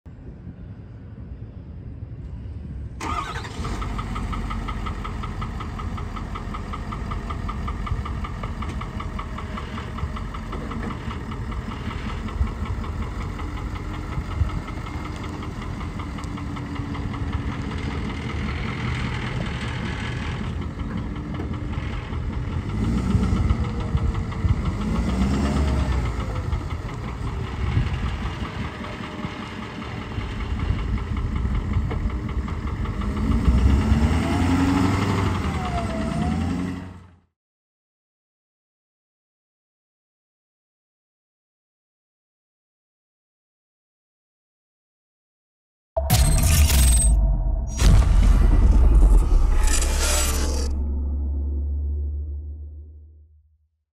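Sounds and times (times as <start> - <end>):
truck engine starting and idling: 2.3 - 37.2, 46.0 - 53.4
engine revving: 21.7 - 26.6, 33.0 - 37.2.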